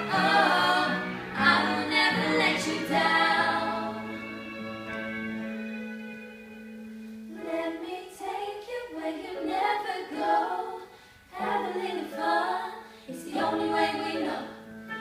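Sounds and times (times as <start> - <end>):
women singing pop ballad in harmony: 0.0 - 4.1, 7.4 - 14.6
singers breathing: 10.8 - 11.3, 12.8 - 13.2.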